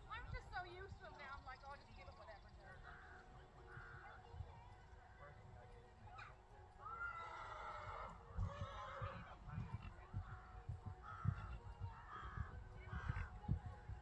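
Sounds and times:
bird honking: 6.2 - 13.4
low thumps and rumble: 8.3 - 14.0.

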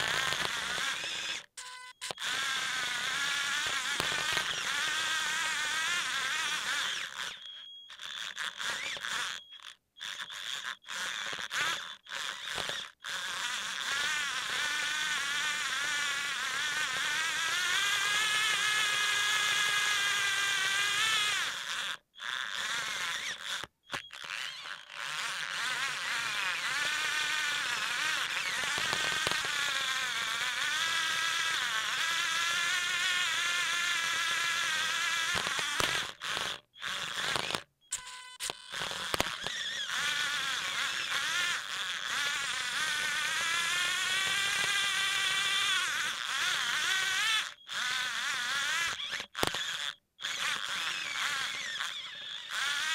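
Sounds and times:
small electric motors whining: 0.0 - 52.9.

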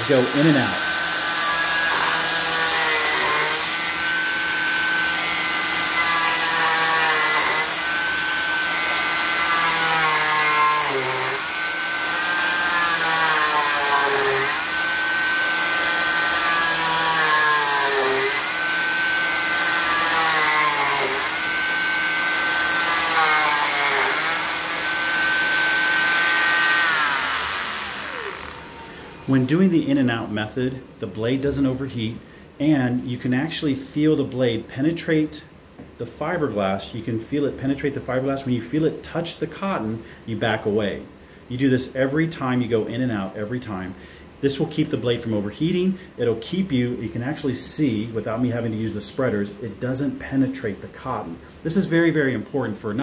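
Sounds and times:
cast saw whining: 0.0 - 29.7.

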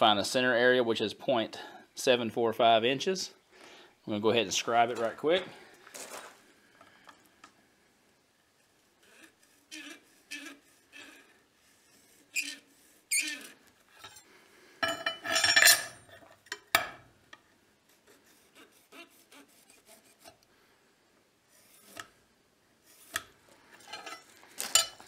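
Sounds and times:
metal scribe scratching brass: 8.6 - 14.2, 17.9 - 20.4.

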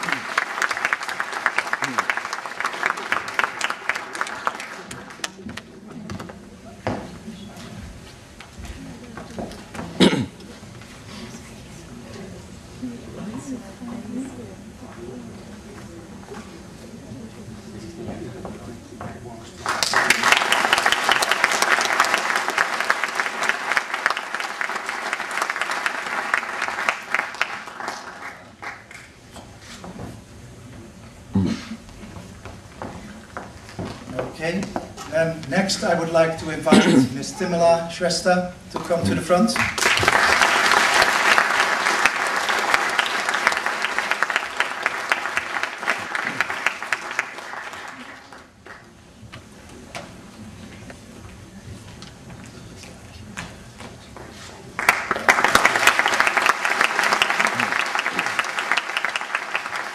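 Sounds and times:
audience applauding: 0.0 - 5.7, 19.6 - 29.1, 39.1 - 48.9, 54.8 - 59.9.

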